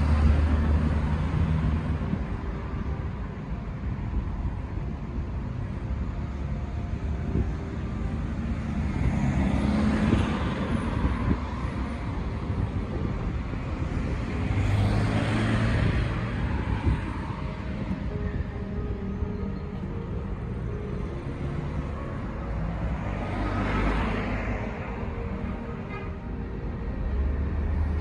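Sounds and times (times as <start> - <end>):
traffic rumble: 0.0 - 28.0
car passing close by: 14.0 - 17.9, 22.6 - 25.2.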